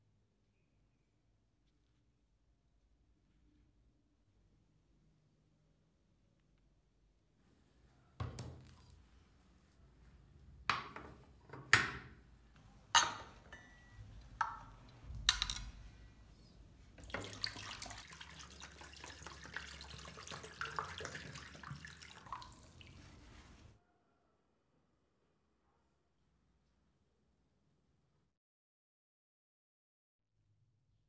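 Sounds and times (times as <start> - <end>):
liquid pouring: 17.0 - 23.7.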